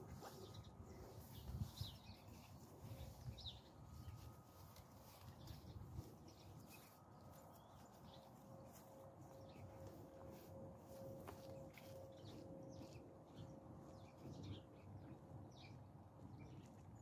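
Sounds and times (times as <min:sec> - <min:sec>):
faint low wind rumble: 0:00.0 - 0:17.0.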